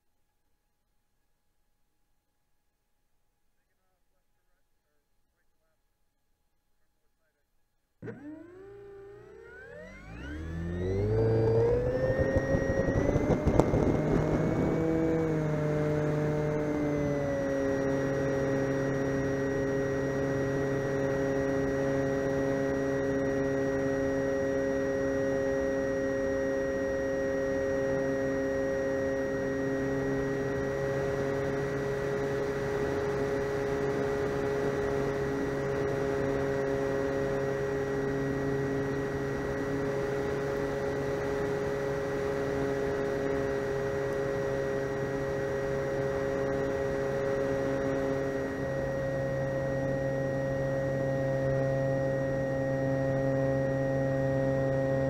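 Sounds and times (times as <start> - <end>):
model plane motor hum-whine: 8.0 - 55.0.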